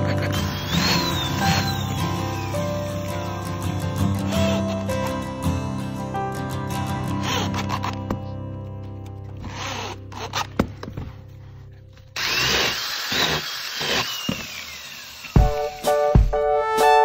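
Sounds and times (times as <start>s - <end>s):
power drill whine: 0.0s - 5.0s, 7.2s - 8.0s, 9.4s - 10.6s, 12.2s - 16.1s.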